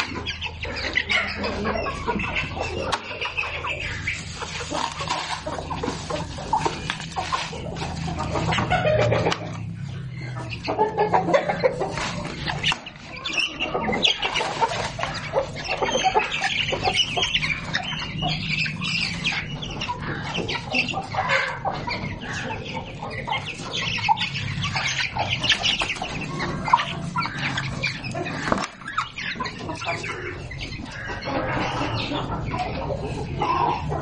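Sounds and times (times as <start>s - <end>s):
chickens clucking: 0.0s - 34.0s.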